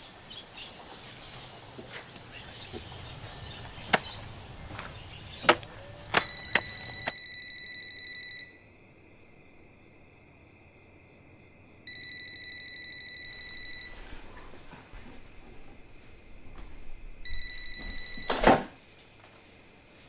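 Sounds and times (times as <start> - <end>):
phone ringing: 4.7 - 8.6, 11.9 - 14.6, 17.2 - 18.7
sharp knocks: 5.4 - 7.1.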